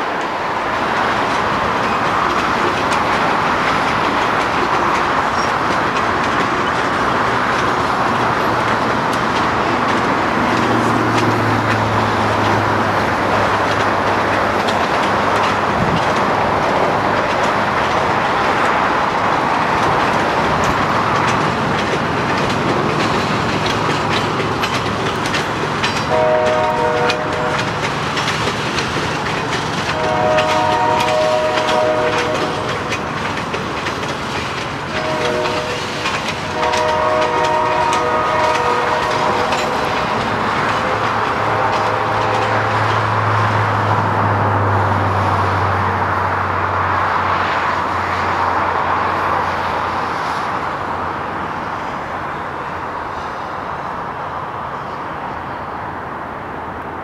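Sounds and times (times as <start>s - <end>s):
train wheel and rail clatter: 0.0s - 57.0s
locomotive horn blasts: 26.0s - 27.7s, 29.9s - 32.9s, 34.9s - 40.2s, 40.8s - 42.8s.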